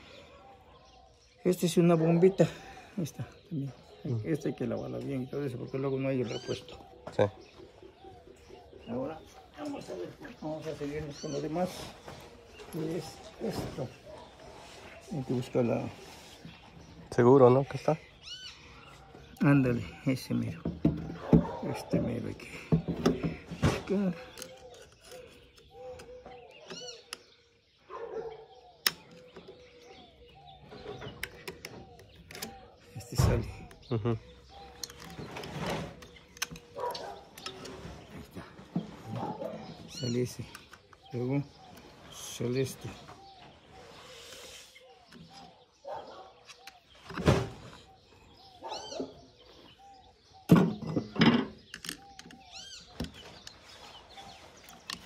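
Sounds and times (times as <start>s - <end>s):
birds calling faintly: 0.0s - 55.0s.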